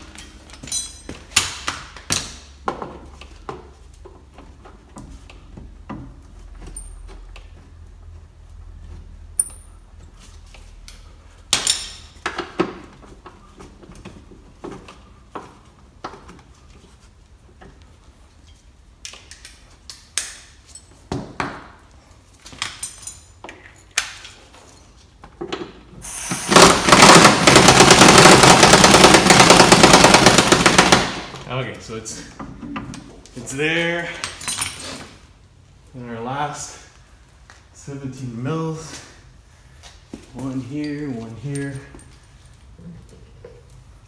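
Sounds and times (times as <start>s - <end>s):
hand tools clinking on metal: 0.0s - 1.2s, 40.8s - 42.2s
impact wrench hammering: 26.3s - 31.4s.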